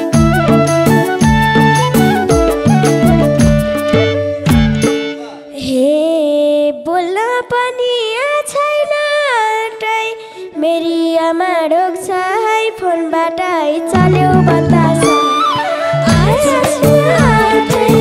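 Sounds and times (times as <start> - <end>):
drum beat: 0.0 - 5.2, 14.0 - 15.3, 16.0 - 18.0
held musical accompaniment: 0.0 - 5.7, 13.7 - 18.0
woman singing ornamented notes: 10.6 - 18.0.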